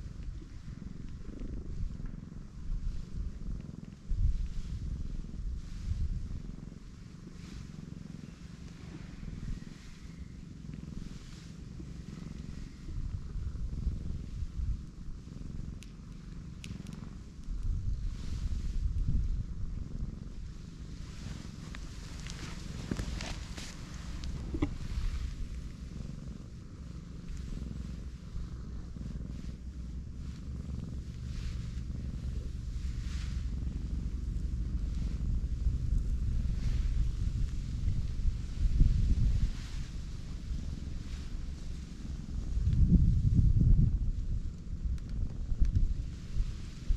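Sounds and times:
cat purring: 0.0s - 46.9s
hand rustling over fur: 20.4s - 43.4s.

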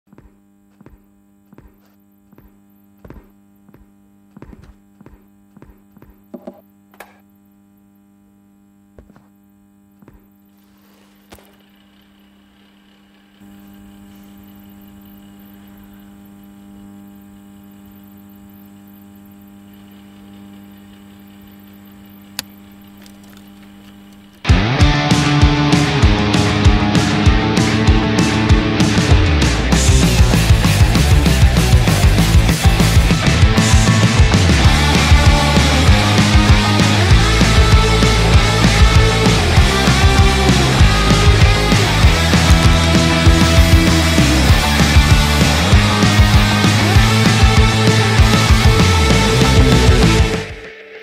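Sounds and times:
electrical mains hum: 0.0s - 51.0s
rock music with guitars: 24.2s - 51.0s.

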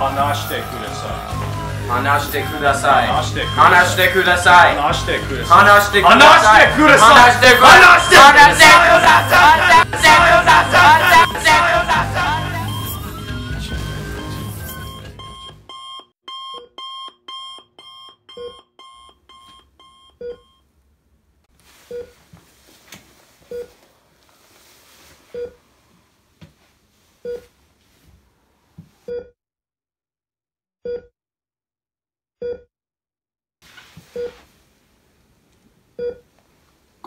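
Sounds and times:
fast high two-tone beeps: 2.3s - 9.6s, 12.6s - 20.5s.

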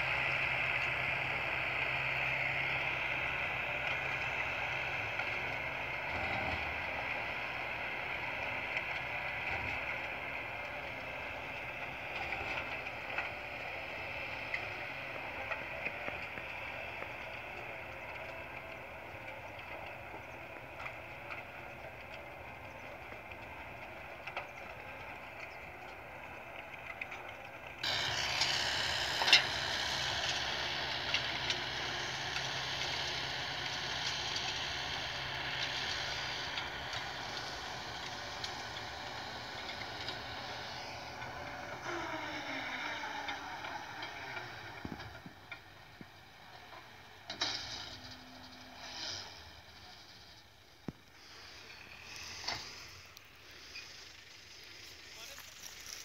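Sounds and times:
tractor engine running: 0.0s - 56.0s.

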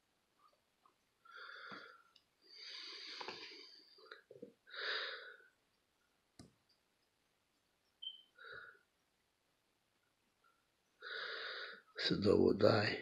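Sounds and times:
person breathing and sniffing: 1.3s - 4.0s.

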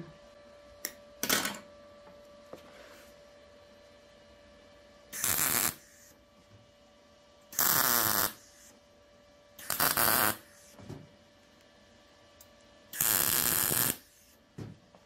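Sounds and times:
welding arc crackling: 5.2s - 6.1s, 7.6s - 8.4s, 9.6s - 10.5s, 12.9s - 14.3s.

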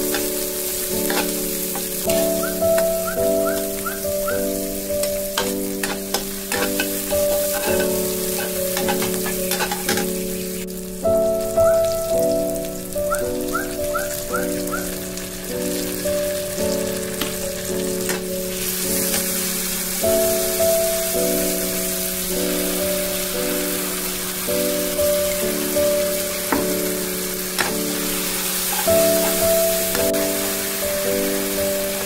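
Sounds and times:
light background melody: 0.0s - 32.0s
onions sizzling in hot oil: 0.0s - 32.0s
metal spatula scraping wok: 1.0s - 2.4s, 5.0s - 10.2s, 27.6s - 29.5s.

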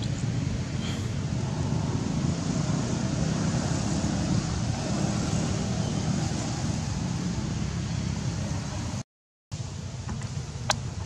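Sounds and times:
wind noise on microphone: 0.0s - 9.0s.

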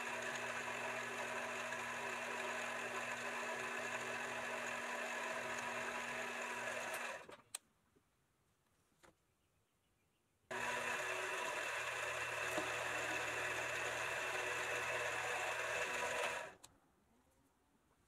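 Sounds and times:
hacksaw cutting spinning rod: 0.0s - 7.3s, 10.5s - 16.6s
lathe motor hum: 0.0s - 7.3s, 10.5s - 16.6s.

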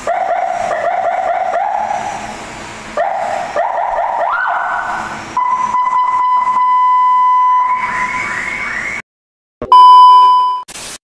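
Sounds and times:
electronic car siren: 0.0s - 2.2s, 3.0s - 9.0s
loud steady beep: 5.4s - 9.0s, 9.7s - 10.7s.

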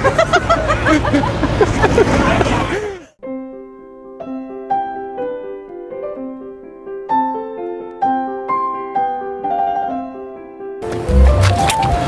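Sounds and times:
gentle piano-like keyboard melody: 3.2s - 12.0s.

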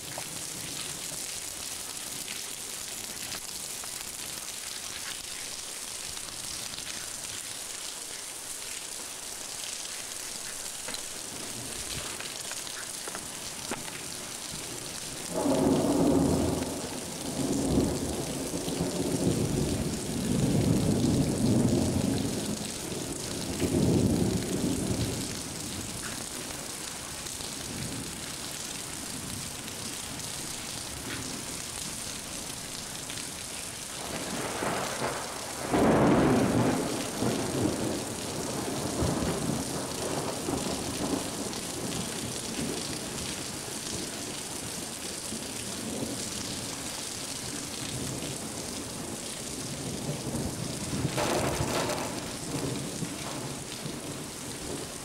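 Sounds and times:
rain hissing: 0.0s - 55.0s
thunder rumbling: 13.8s - 26.7s, 34.0s - 43.1s, 49.0s - 55.0s.

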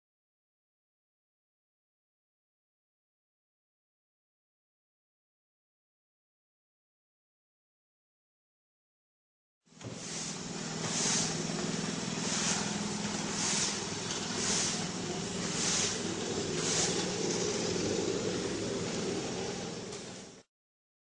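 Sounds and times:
squeegee swishing across floor: 9.8s - 18.1s
steady low hum: 9.8s - 20.5s.

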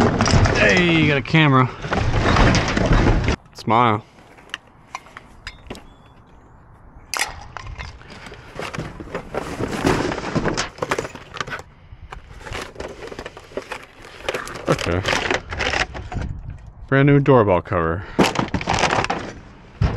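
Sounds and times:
cardboard rustling and crackling: 8.1s - 16.2s, 18.3s - 19.9s.

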